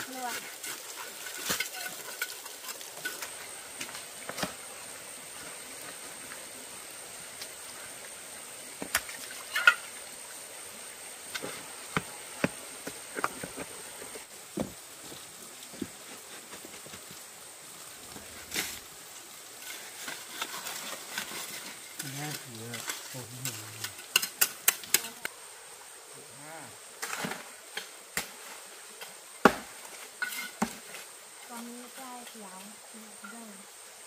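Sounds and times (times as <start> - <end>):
high-pitched insect drone: 21.5 - 26.9, 30.0 - 34.0.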